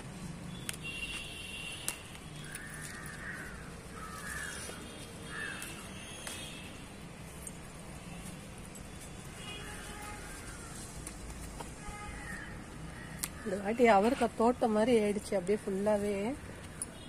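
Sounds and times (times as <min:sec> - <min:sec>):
crow cawing: 0:02.5 - 0:05.9, 0:10.2 - 0:10.8, 0:12.2 - 0:13.6.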